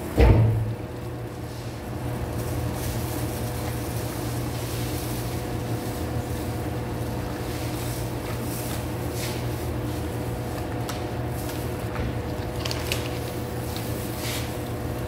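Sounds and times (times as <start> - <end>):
dough mixer motor hum: 0.0 - 15.0.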